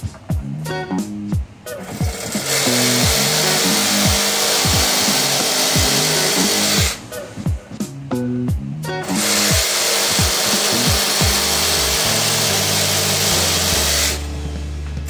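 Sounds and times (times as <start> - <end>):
background music with plucked notes: 0.0 - 15.0
reciprocating saw cutting plastic: 1.8 - 7.1, 9.0 - 14.3.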